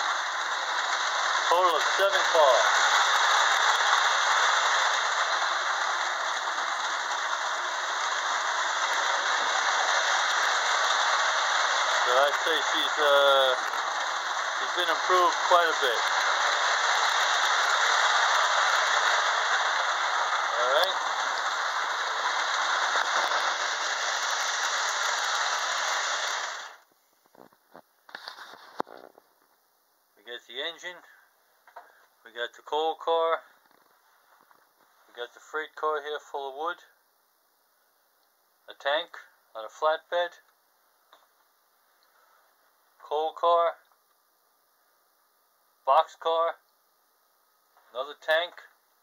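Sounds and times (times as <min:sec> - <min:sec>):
toy electric train rattling: 0:00.0 - 0:26.8.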